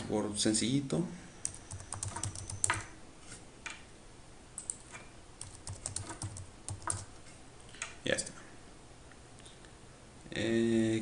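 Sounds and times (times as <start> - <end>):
computer keyboard typing: 1.4 - 2.9, 4.6 - 7.2.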